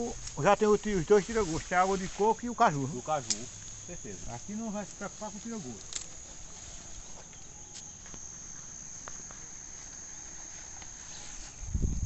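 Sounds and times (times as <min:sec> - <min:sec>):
footsteps through tall grass: 0:00.0 - 0:12.0
insects chirring: 0:00.0 - 0:12.0.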